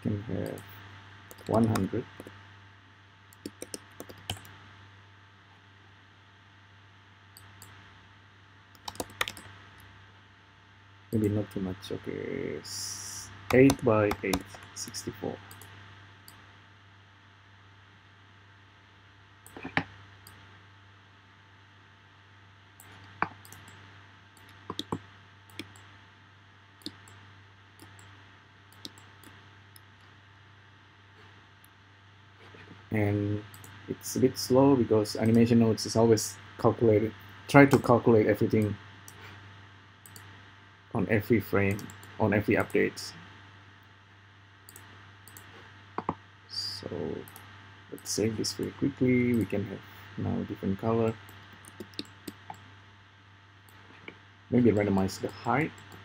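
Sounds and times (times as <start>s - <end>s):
low steady hum: 0.0s - 56.0s
computer keyboard keystrokes: 3.4s - 4.6s, 8.8s - 9.5s, 13.5s - 15.7s, 24.4s - 25.8s, 51.6s - 52.6s
mouse clicks: 13.5s - 15.7s, 24.4s - 25.9s, 28.7s - 29.9s, 51.3s - 52.6s.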